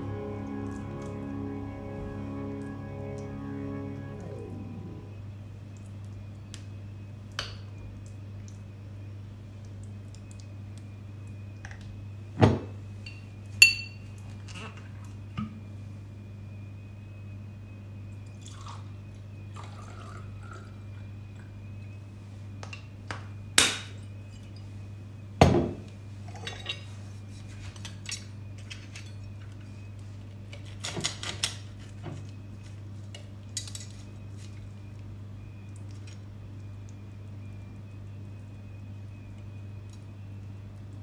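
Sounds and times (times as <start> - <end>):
low hum: 0.0 - 14.0
liquor pouring into glass: 18.4 - 18.9, 19.5 - 21.0.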